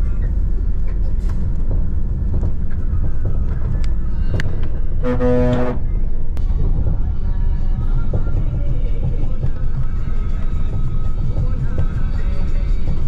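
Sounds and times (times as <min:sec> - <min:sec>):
bus rumbling over rough road: 0:00.0 - 0:13.0
loud horn: 0:05.0 - 0:05.9.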